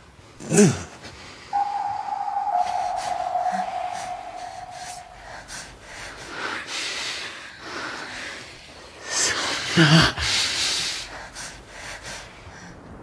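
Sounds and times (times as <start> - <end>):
high tone: 1.6 - 6.0.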